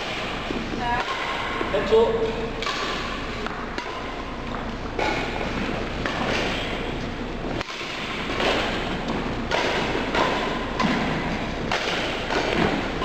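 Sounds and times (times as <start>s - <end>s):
rackets striking shuttlecock: 0.0s - 13.0s
footsteps on wooden court: 3.4s - 9.3s.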